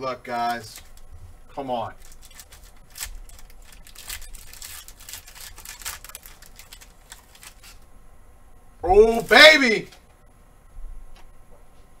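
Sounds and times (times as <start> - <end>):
foil wrapper crinkling and tearing: 0.4 - 1.1, 1.8 - 7.8.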